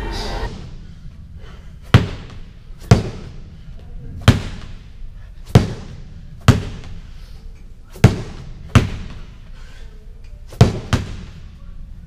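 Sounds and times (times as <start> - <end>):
medicine ball thuds on floor: 5.5 - 7.0, 8.0 - 9.2, 10.6 - 11.4.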